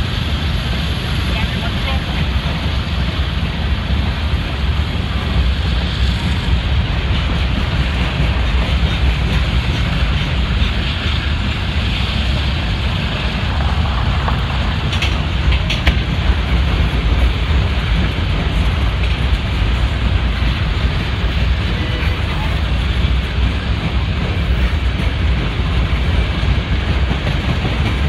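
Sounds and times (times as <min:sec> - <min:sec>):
train wheels rumbling on rail: 0:00.0 - 0:28.0.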